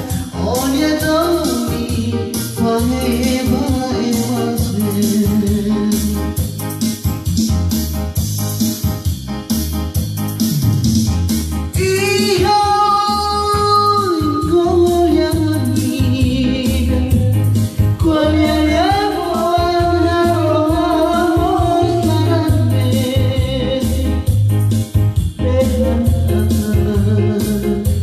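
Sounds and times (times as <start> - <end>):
man singing into microphone: 0.0 - 6.4, 11.7 - 24.3, 25.4 - 28.0
electronic keyboard: 0.0 - 28.0
low bass beat: 0.0 - 28.0.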